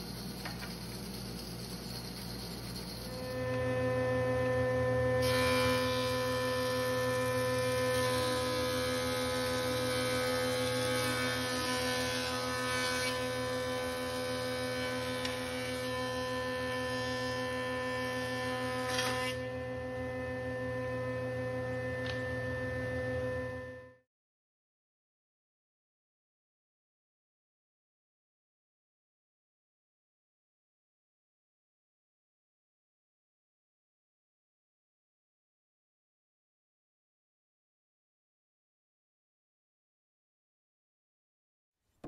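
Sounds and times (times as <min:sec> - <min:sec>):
thickness planer motor humming: 0:02.8 - 0:24.0
planer cutting wood: 0:03.1 - 0:23.8.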